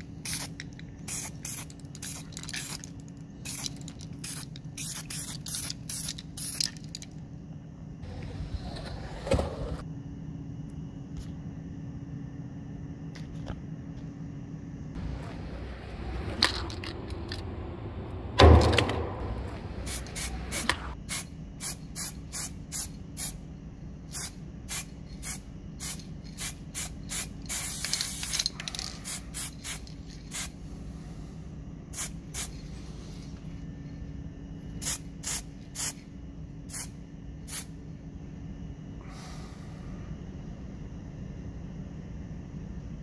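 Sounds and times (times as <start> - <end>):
spray can spraying: 0.3 - 2.9, 3.5 - 6.8, 19.8 - 23.3, 24.1 - 30.5
heavy thump: 17.5 - 21.0.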